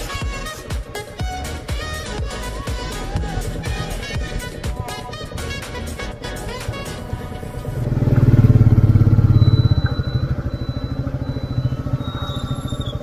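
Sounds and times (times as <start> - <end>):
motorcycle engine running: 5.5 - 13.0.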